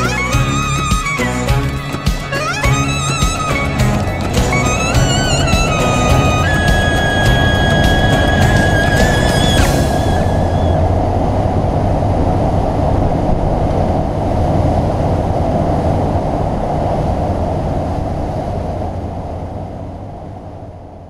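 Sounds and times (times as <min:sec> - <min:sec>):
ferry engines rumbling: 0:00.0 - 0:14.9
churning wake rushing: 0:00.0 - 0:19.4.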